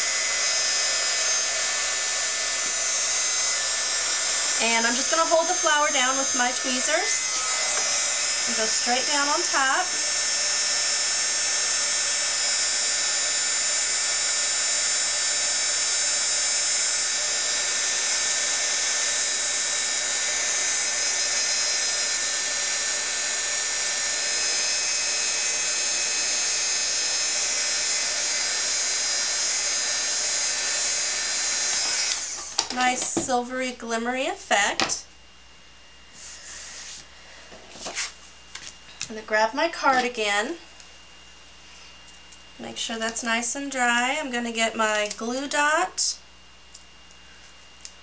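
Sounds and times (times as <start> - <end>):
heat gun whining and hissing: 0.0 - 35.1, 36.0 - 46.2.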